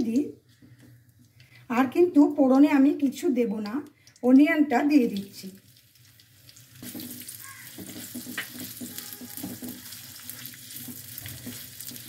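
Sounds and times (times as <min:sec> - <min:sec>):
onion sizzling in hot oil: 0:04.9 - 0:12.0
spatula scraping taps: 0:06.8 - 0:12.0.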